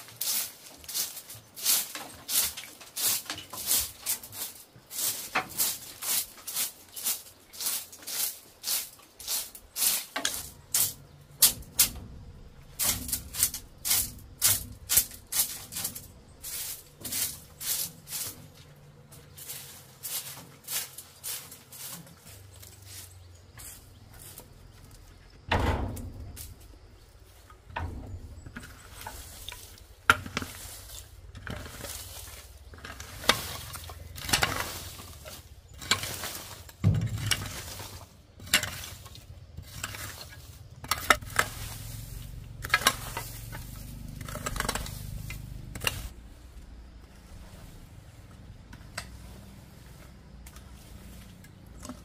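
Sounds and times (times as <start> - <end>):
low hum: 10.5 - 19.3, 40.8 - 50.0.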